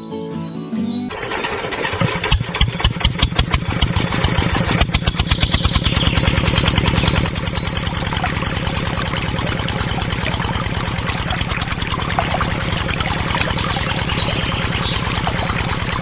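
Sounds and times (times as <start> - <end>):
small engine chugging: 1.1 - 16.0
water pouring into plastic tub: 7.2 - 16.0.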